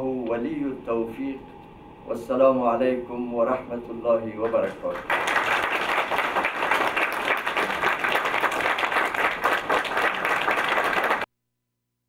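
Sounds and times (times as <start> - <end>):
audience clapping: 4.4 - 11.3.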